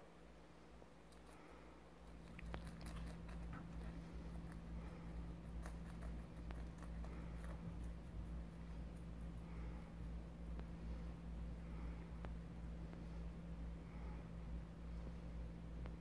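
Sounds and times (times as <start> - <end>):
low steady hum: 0.0 - 16.0
rabbits nibbling a crisp leaf: 0.8 - 11.2.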